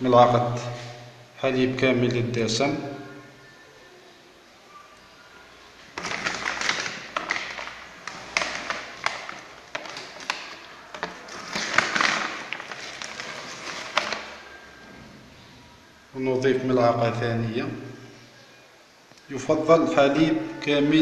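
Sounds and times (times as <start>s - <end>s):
plastic bag crinkling: 5.8s - 14.6s.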